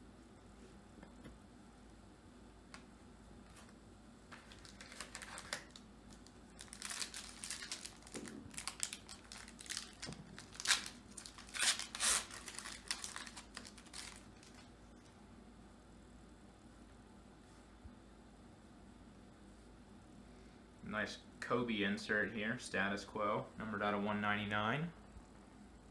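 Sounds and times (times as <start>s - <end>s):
plastic wrapper crinkling and tearing: 4.3s - 14.7s.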